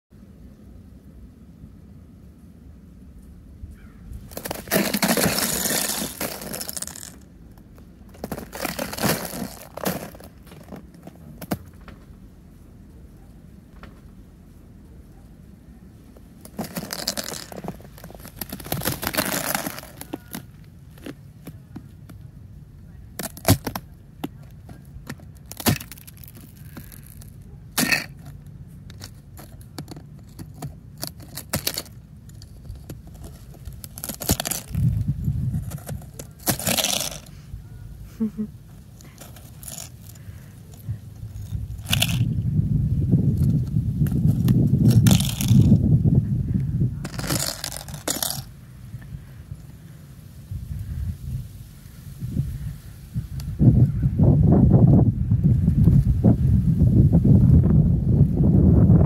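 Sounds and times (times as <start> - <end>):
boots crunching icy snow: 4.3 - 7.2, 8.1 - 11.6, 16.4 - 21.2, 32.6 - 34.8
sharp ice crack: 4.3 - 7.3, 8.1 - 10.8, 16.4 - 21.2, 23.2 - 23.9, 24.8 - 37.3, 39.0 - 42.4, 43.4 - 45.8, 47.0 - 48.5.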